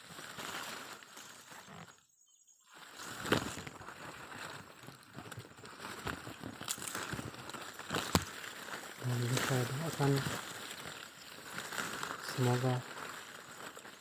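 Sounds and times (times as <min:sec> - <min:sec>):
outdoor background noise: 0:00.0 - 0:14.0.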